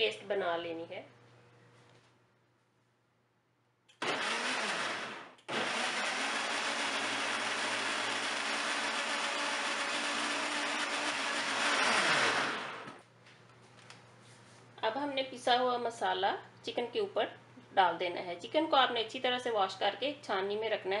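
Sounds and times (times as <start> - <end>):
blender grinding: 4.0 - 13.0.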